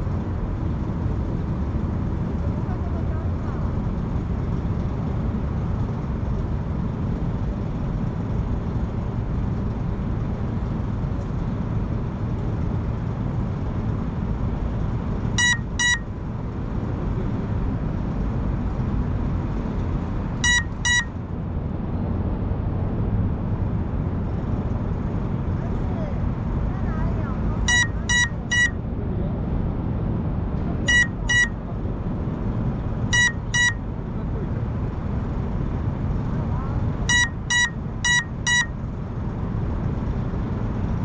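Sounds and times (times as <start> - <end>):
low background rumble: 0.0 - 41.0
high-pitched double beeps: 15.4 - 16.0, 20.4 - 21.1, 27.7 - 28.7, 30.9 - 31.5, 33.2 - 33.8, 37.1 - 38.7.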